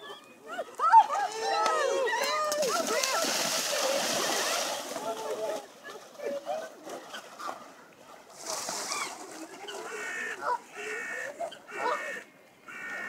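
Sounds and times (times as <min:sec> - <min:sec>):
swimmer splashing: 0:02.1 - 0:10.5
geese honking: 0:09.9 - 0:13.0.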